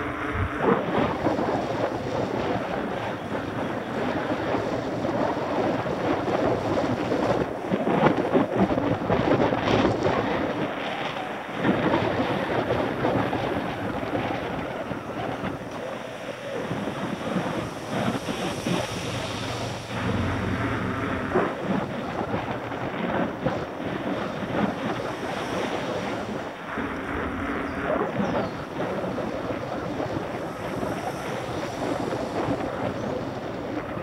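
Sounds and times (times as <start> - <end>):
bus engine humming past: 0.0 - 3.5, 13.6 - 22.7
wind buffeting microphone: 0.0 - 34.0.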